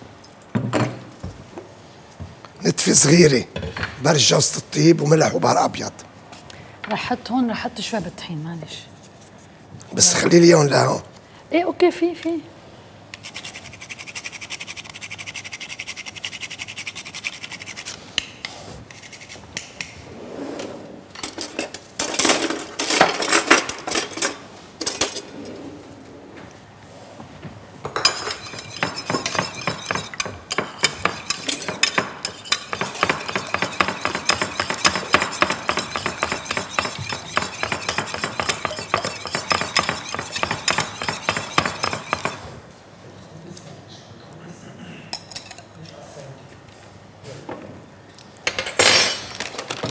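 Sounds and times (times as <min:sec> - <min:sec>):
kitchenware clattering: 0:21.2 - 0:25.4, 0:27.8 - 0:42.5, 0:48.5 - 0:49.9.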